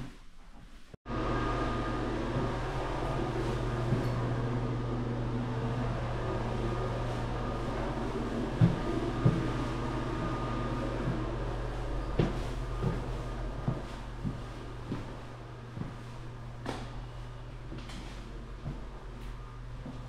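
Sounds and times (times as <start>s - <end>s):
motor humming: 1.1s - 20.0s.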